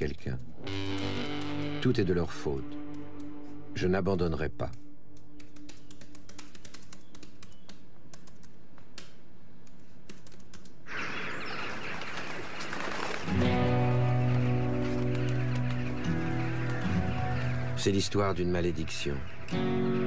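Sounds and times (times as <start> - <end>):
music: 0.4 - 7.3, 13.2 - 20.0
laptop keyboard typing: 5.4 - 10.8.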